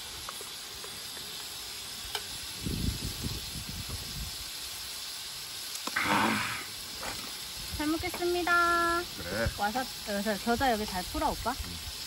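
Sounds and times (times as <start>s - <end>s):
steady hiss: 0.0s - 12.0s.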